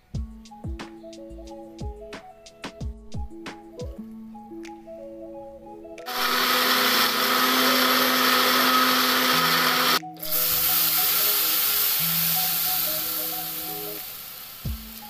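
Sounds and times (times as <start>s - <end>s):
background music: 0.0s - 15.0s
electric blender grinding: 6.1s - 13.4s
paste sizzling in hot oil: 9.6s - 15.0s.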